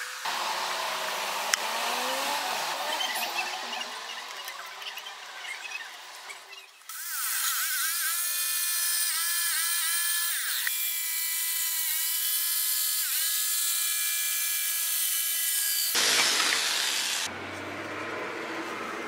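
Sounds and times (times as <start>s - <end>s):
rotary tool whining: 0.2s - 10.9s.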